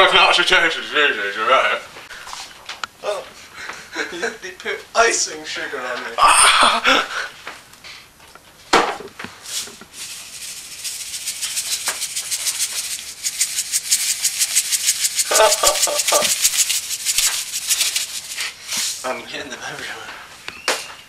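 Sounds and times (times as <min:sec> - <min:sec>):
plastic shaker rattling: 0:09.5 - 0:19.1.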